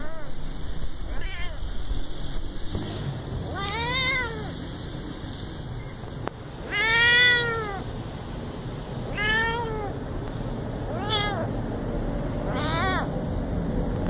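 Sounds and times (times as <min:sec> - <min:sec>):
young cat meowing: 0:01.1 - 0:01.7, 0:03.5 - 0:04.6, 0:06.6 - 0:07.9, 0:09.1 - 0:10.0, 0:10.9 - 0:11.5, 0:12.4 - 0:13.2.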